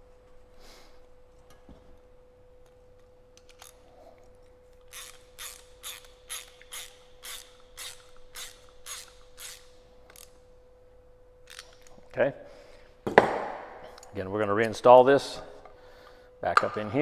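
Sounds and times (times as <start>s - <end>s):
ratchet wrench clicking: 4.9s - 10.4s.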